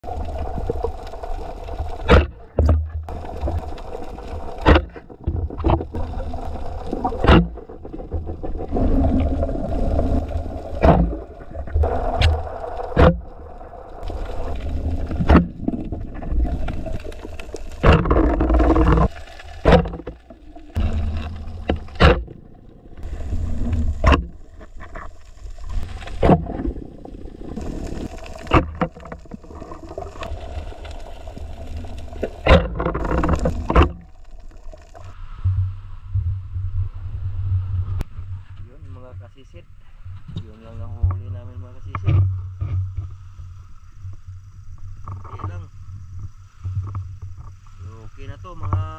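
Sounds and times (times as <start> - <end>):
water gurgling underwater: 0.0 - 35.1
low rumble: 0.0 - 43.6.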